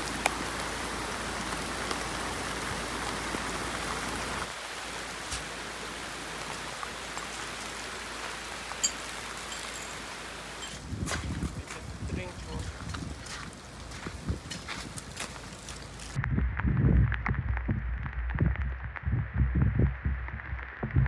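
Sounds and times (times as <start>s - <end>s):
heavy rain on tarp: 0.0s - 16.3s.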